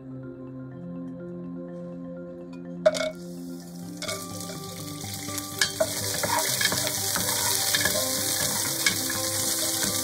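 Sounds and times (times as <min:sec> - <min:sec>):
spices sizzling in hot oil: 0:02.9 - 0:10.0
wooden spatula stirring: 0:05.6 - 0:10.0.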